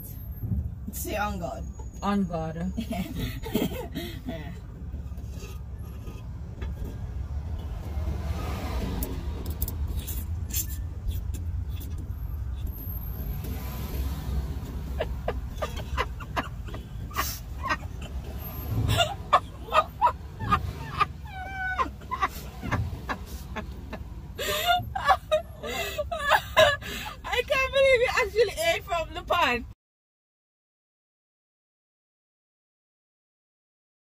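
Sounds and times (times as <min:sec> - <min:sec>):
person giggling and laughing: 0:02.8 - 0:04.6, 0:14.9 - 0:27.4
car cabin hum: 0:13.4 - 0:29.6.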